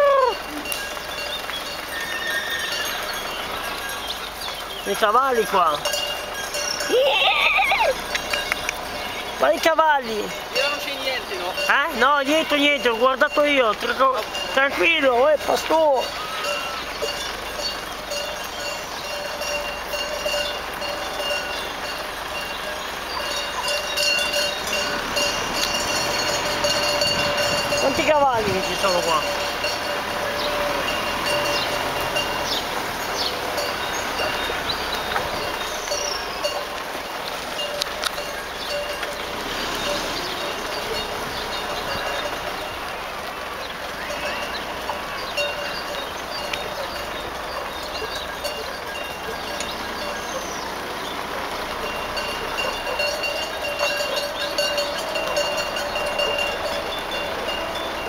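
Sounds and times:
car driving slowly: 0.0s - 58.0s
hooves on asphalt: 0.0s - 58.0s
sheep bells ringing: 0.0s - 58.0s
animal calls: 6.6s - 9.4s, 28.5s - 58.0s.

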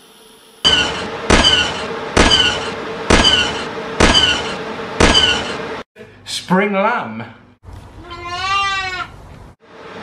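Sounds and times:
phaser gun zaps: 0.6s - 5.6s.

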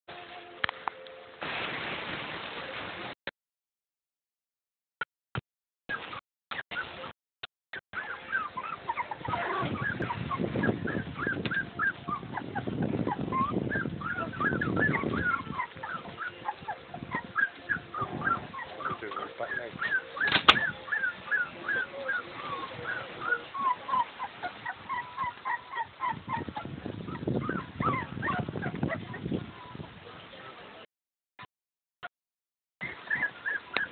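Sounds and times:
puppies squeaking and whimpering: 5.9s - 7.1s, 8.0s - 29.8s, 32.8s - 33.9s.

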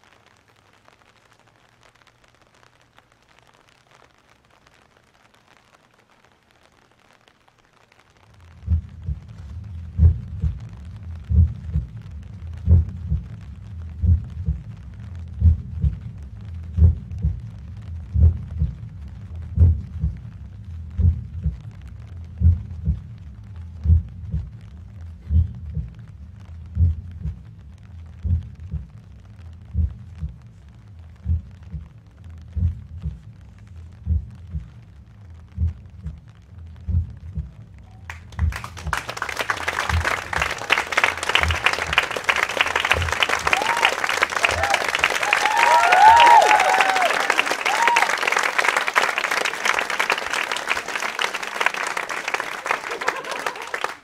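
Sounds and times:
applause: 0.0s - 3.0s, 38.1s - 54.0s
slow deep thumping pulse: 8.3s - 39.0s.

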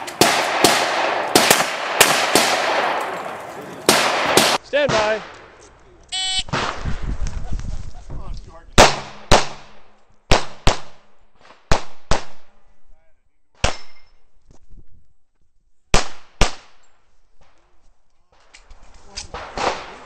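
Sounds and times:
pistol shots with echo: 0.0s - 3.2s, 3.8s - 5.4s, 8.8s - 11.1s.

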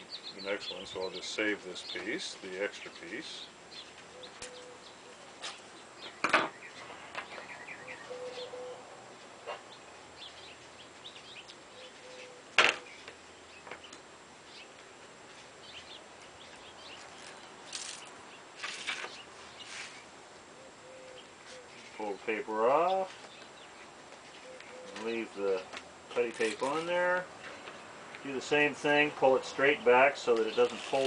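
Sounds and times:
birds chirping: 0.0s - 31.0s
low bird coos: 4.1s - 5.6s, 6.8s - 9.8s, 11.6s - 13.1s, 20.5s - 22.0s, 24.4s - 25.1s.

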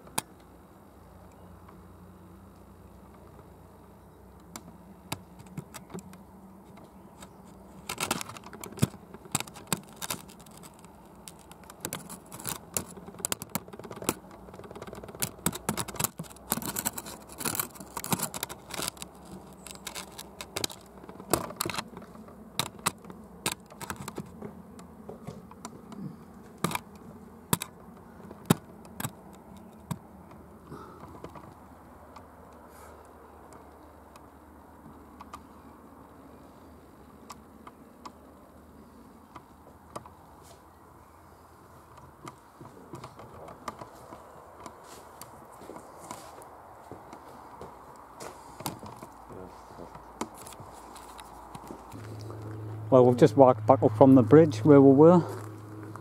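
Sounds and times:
irregular sharp clicks and taps: 4.4s - 35.5s.

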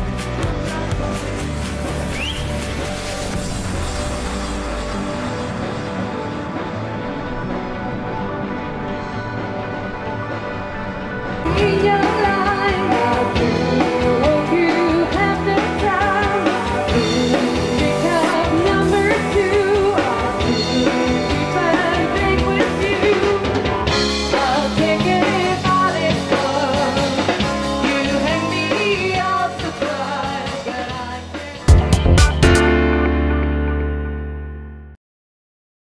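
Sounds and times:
drum kit: 0.0s - 10.5s, 11.4s - 34.0s
electric guitar: 0.0s - 34.9s
bass guitar: 0.0s - 35.0s
keyboard: 0.0s - 35.0s
woman singing: 11.5s - 31.7s.

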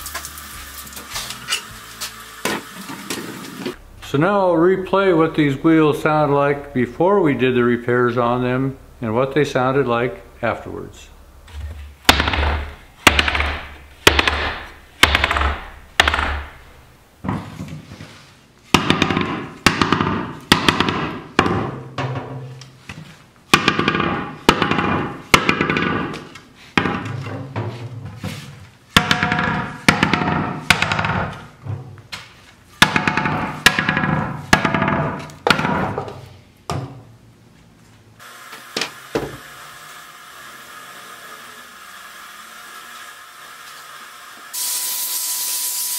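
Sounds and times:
steady hiss: 38.2s - 45.9s.

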